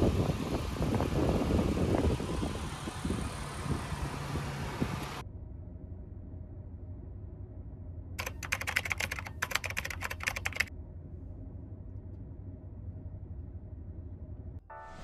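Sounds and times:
steady low rumble: 0:00.0 - 0:08.6, 0:09.4 - 0:15.0
rapid sharp clicks: 0:08.2 - 0:10.7.

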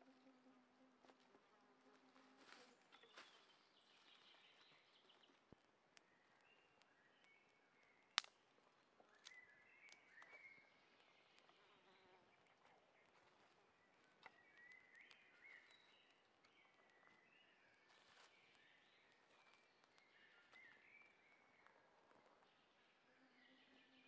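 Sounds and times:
campfire crackling: 0:05.1 - 0:10.3.

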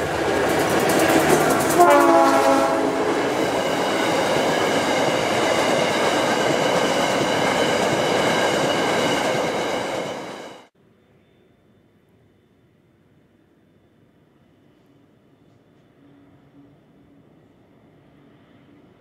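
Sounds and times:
freight train wheels rumbling: 0:00.0 - 0:10.7.

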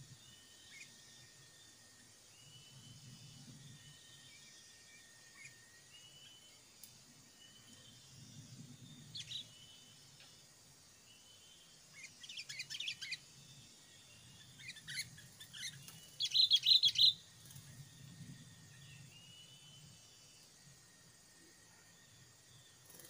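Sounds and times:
birds chirping: 0:02.4 - 0:10.4, 0:11.0 - 0:20.6.

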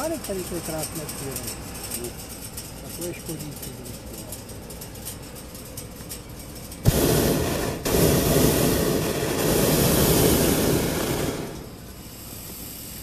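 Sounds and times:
propane burner blast: 0:06.7 - 0:13.0.

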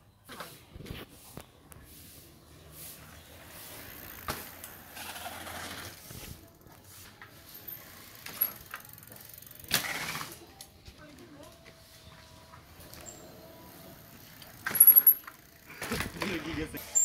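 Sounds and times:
tyre noise on pavement: 0:00.3 - 0:17.0
bicycle freewheel hub ticking: 0:07.6 - 0:10.4, 0:13.9 - 0:16.0.

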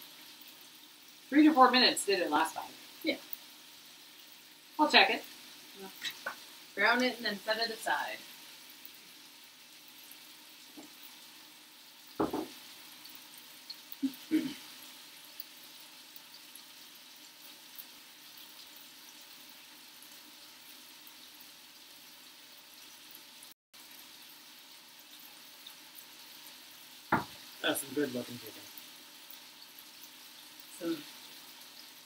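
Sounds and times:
chicken sizzling in a frying pan: 0:00.0 - 0:32.0.

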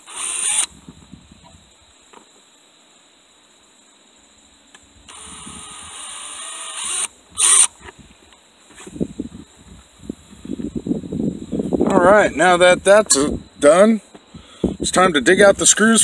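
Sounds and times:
cordless drill boring into plastic: 0:00.0 - 0:00.7, 0:05.1 - 0:07.7.

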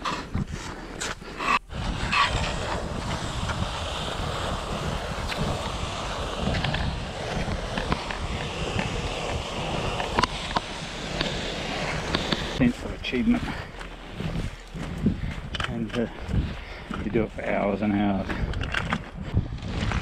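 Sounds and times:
snow scraping under sliding body: 0:00.2 - 0:18.2, 0:19.0 - 0:20.0
wind buffeting microphone: 0:01.6 - 0:20.0.

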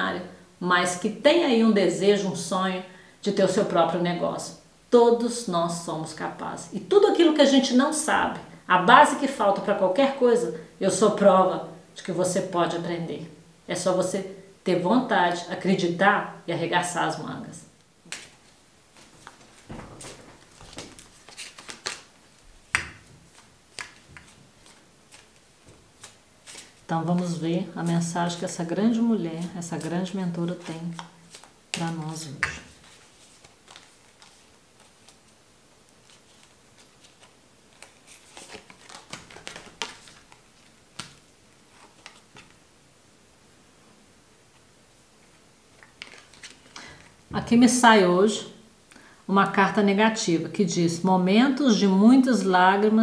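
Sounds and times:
cards being shuffled: 0:18.0 - 0:28.0, 0:29.4 - 0:42.6, 0:45.7 - 0:47.2.

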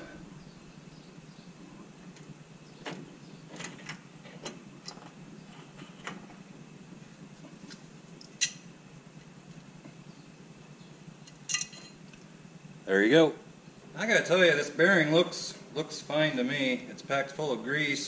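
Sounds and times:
sharp metal clink: 0:11.5 - 0:12.0.

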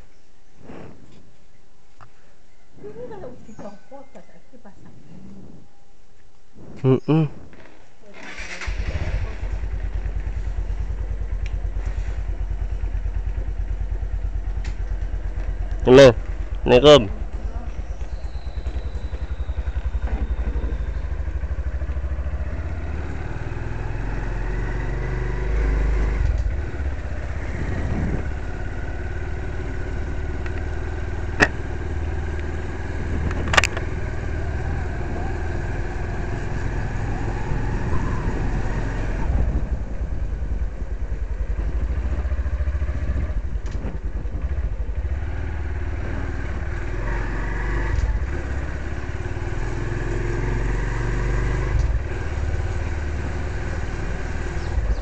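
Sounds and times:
motorcycle engine running: 0:08.1 - 0:55.0
sharp clicks: 0:33.2 - 0:33.9.

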